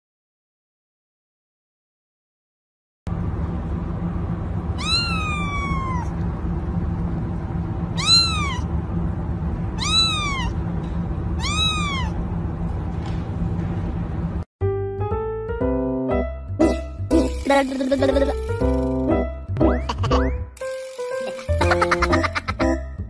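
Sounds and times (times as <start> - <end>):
low background hum: 3.1 - 14.5, 16.6 - 23.0
kitten meowing: 4.8 - 6.2, 7.9 - 8.7, 9.8 - 10.6, 11.4 - 12.2.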